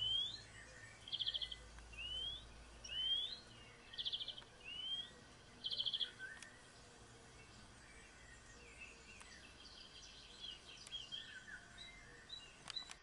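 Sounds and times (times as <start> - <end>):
quiet hiss: 0.0 - 13.0
songbird chirping: 0.0 - 13.0
sharp click: 12.6 - 13.0.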